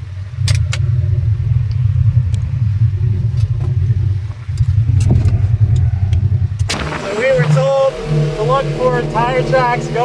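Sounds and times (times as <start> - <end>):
engine low rumble: 0.0 - 10.0.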